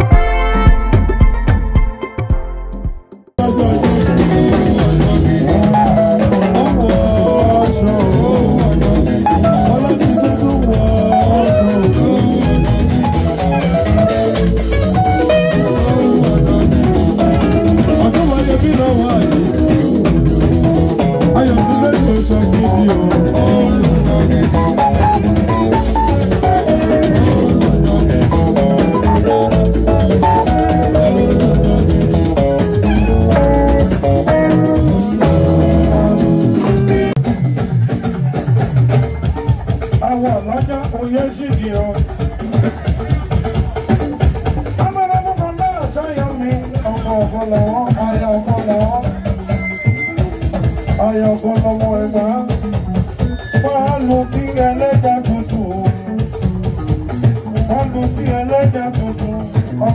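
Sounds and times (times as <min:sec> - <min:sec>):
melodic instrument lines: 0:00.0 - 0:38.2
drum kit beat: 0:00.0 - 0:59.9.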